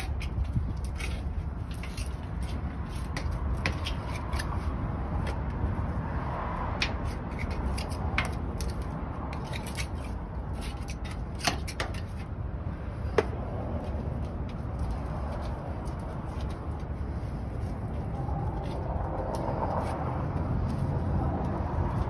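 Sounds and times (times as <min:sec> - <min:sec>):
steady low rumble: 0:12.0 - 0:22.0.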